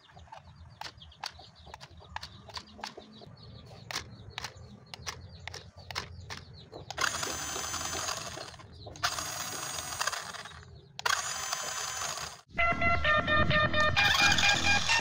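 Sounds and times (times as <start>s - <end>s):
plastic toy parts clicking: 0.3s - 3.1s, 3.8s - 12.5s
toy car motor whining: 6.9s - 12.5s, 14.0s - 15.0s.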